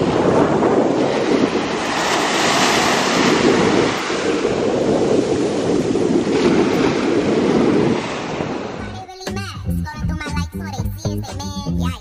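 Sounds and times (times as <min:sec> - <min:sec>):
surf rushing: 0:00.0 - 0:09.0
wind buffeting microphone: 0:00.0 - 0:10.4.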